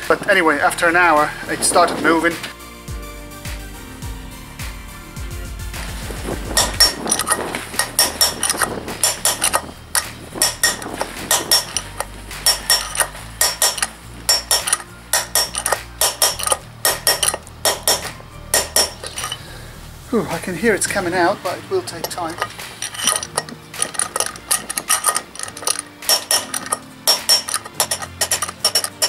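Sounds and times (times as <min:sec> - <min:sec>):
hammer striking metal punch: 0:06.6 - 0:19.4, 0:22.1 - 0:29.0.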